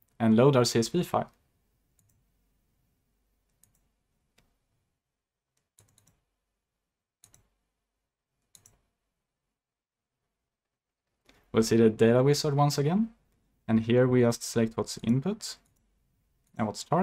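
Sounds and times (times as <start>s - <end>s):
computer mouse clicks: 2.0s - 2.2s, 3.5s - 4.5s, 5.6s - 6.2s, 7.2s - 7.5s, 8.4s - 8.8s.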